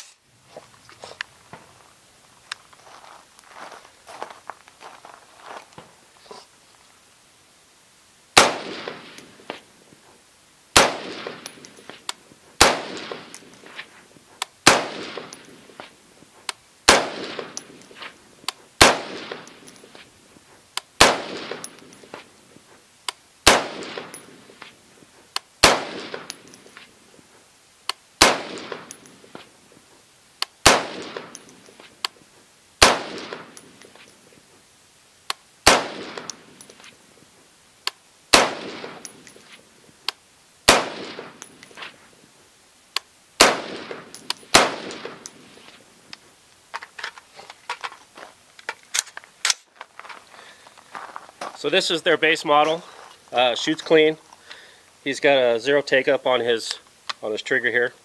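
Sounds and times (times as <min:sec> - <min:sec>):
rifle shots with echo: 0:08.4 - 0:09.5, 0:10.7 - 0:11.8, 0:12.6 - 0:13.7, 0:14.6 - 0:15.8, 0:16.9 - 0:17.9, 0:18.8 - 0:19.9, 0:21.0 - 0:22.1, 0:23.4 - 0:24.6, 0:25.6 - 0:26.7, 0:28.2 - 0:29.3, 0:30.6 - 0:31.6, 0:32.8 - 0:33.8, 0:35.6 - 0:36.7, 0:38.3 - 0:39.4, 0:40.7 - 0:41.6, 0:43.4 - 0:45.6.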